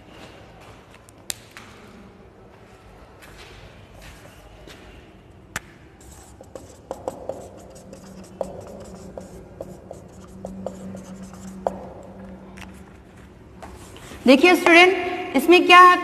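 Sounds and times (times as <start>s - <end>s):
marker writing on whiteboard: 5.6s - 14.8s.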